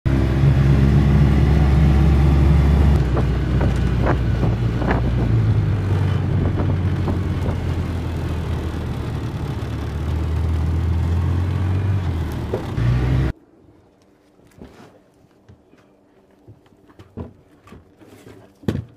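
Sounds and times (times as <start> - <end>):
off-road vehicle engine running: 0.1 - 13.4.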